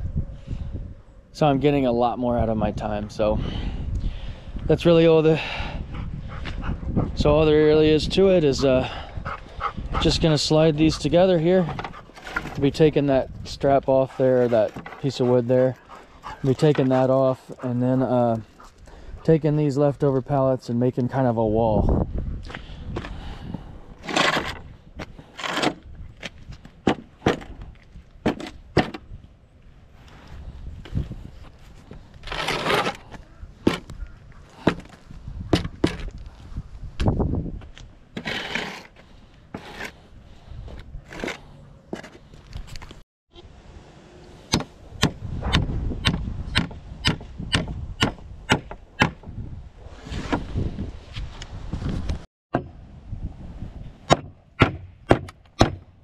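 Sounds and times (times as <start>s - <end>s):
pallets scraping on concrete: 10.0s - 17.8s, 24.0s - 26.4s, 31.9s - 33.9s, 38.1s - 43.0s
wooden knocks and clatters: 14.5s - 15.0s
hammer striking nail into wood: 44.5s - 49.2s, 54.1s - 55.9s.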